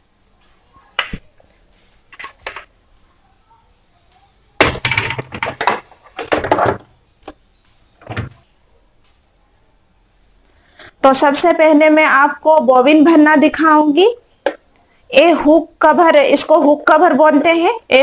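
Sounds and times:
plastic rattling and scraping: 0:04.6 - 0:06.9.

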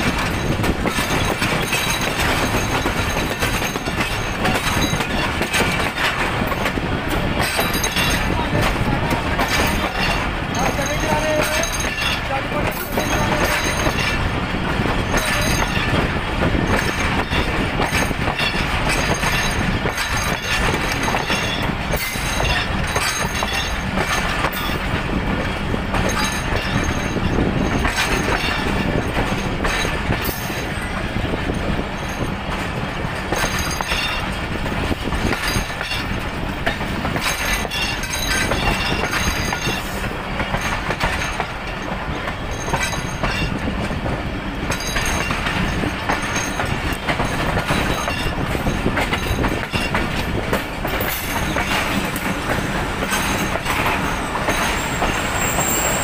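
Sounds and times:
train wheels running on rails: 0:00.0 - 0:56.0
wheels clicking over rail joints: 0:00.0 - 0:56.0.

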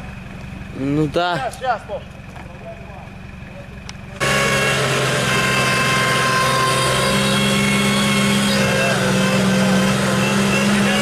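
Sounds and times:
engine running: 0:00.0 - 0:11.0
winch whining: 0:04.2 - 0:11.0.

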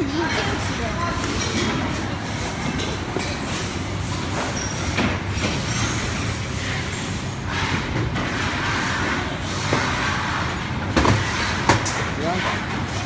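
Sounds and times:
workshop machinery humming: 0:00.0 - 0:13.0.

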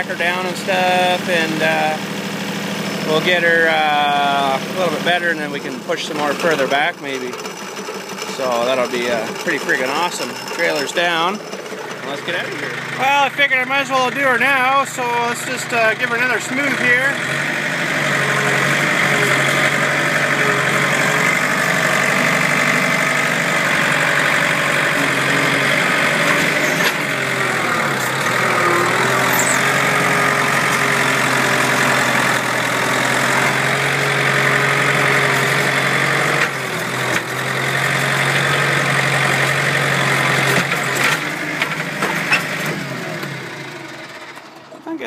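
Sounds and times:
loader engine running: 0:00.0 - 0:45.0.

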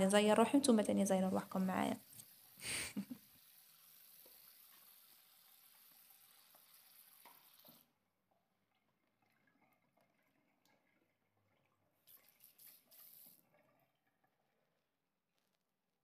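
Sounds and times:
tap water running into sink: 0:01.5 - 0:07.9, 0:08.7 - 0:14.6
water dripping: 0:01.6 - 0:14.8.

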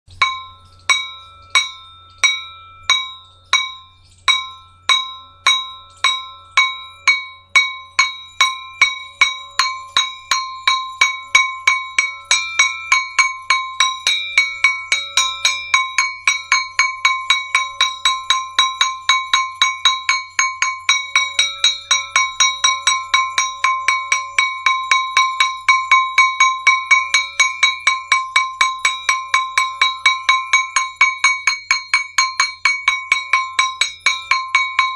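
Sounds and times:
small metal gong struck with stick: 0:00.1 - 0:34.9.

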